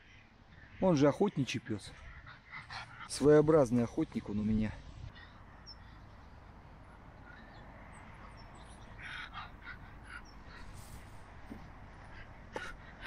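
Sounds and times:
faint outdoor background: 0.0s - 13.0s
harsh bird calls: 5.1s - 11.2s.

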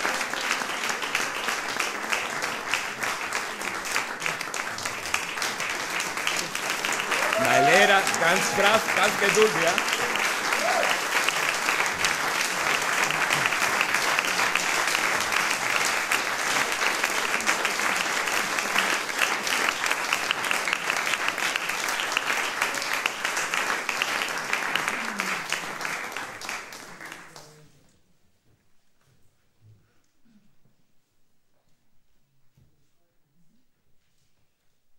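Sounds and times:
audience applauding: 0.0s - 27.6s.

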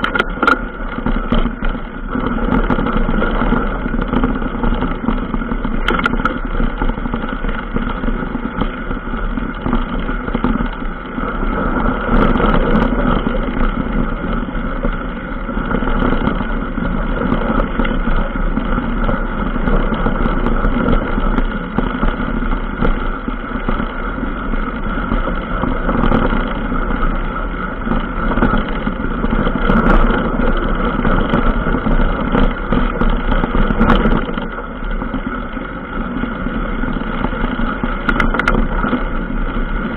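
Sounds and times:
vehicle engine running: 0.0s - 39.9s.

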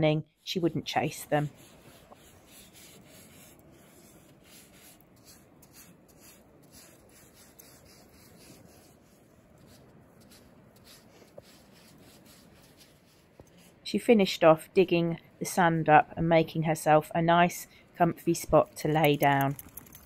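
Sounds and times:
paws scraping sand: 1.1s - 13.8s.

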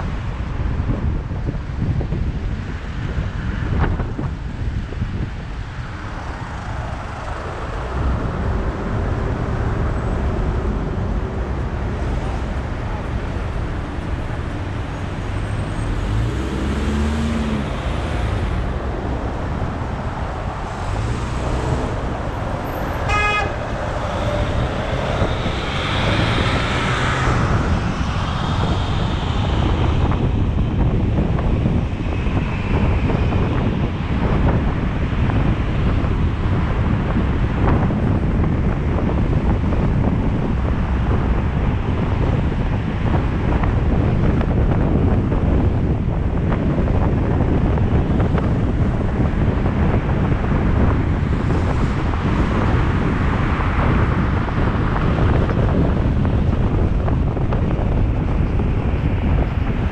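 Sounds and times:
car engine and road noise: 0.0s - 59.9s
cars passing: 0.0s - 59.9s
car horn toot: 23.0s - 23.7s.

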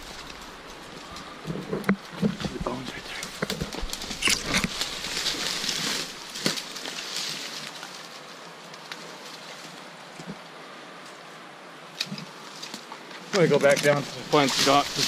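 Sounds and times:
dry brush rustling and crackling: 0.0s - 15.0s
steady hiss: 0.0s - 15.0s
twig snapping: 3.2s - 6.8s.

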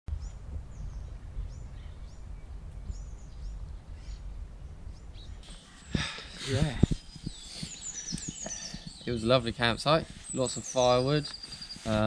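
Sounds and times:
steady low rumble: 0.1s - 5.5s
birds chirping: 0.1s - 12.0s.

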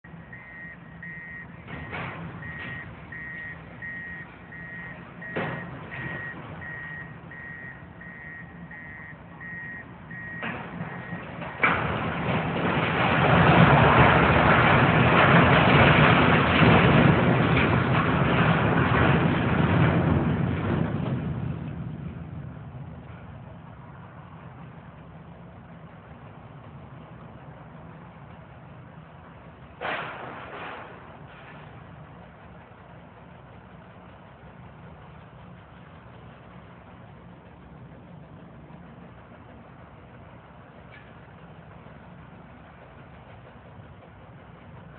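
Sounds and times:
low engine hum: 0.0s - 44.9s
reversing alarm beeping: 0.3s - 11.3s
structure crashing down: 0.4s - 8.3s, 9.1s - 22.2s, 29.8s - 32.0s
sharp crack: 29.8s - 32.0s.

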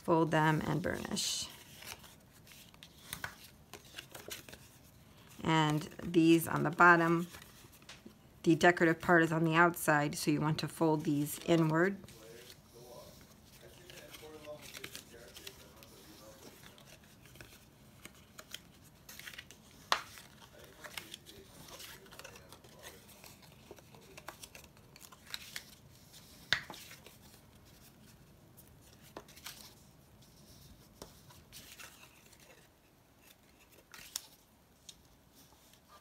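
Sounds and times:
cardstock crinkling and rubbing: 0.0s - 9.6s, 10.6s - 36.0s.

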